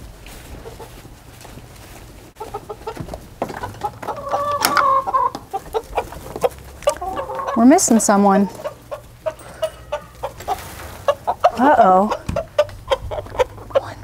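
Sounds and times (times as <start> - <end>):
hens clucking: 0.0 - 14.0.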